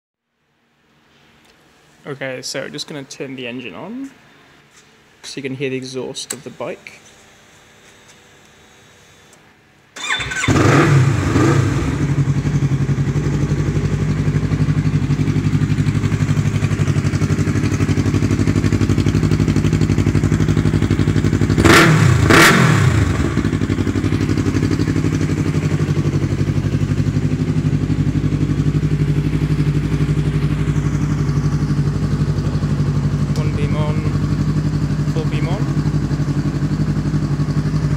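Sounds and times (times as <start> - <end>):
motorcycle engine revving and idling: 10.0 - 37.9.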